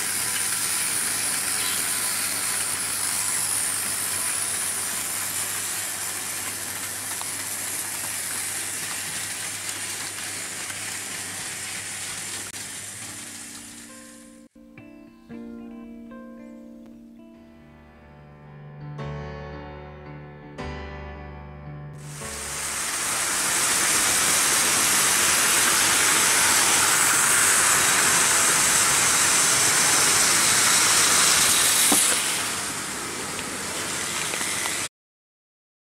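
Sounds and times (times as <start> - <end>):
model trains whirring on track: 0.0 - 13.9, 22.0 - 34.9.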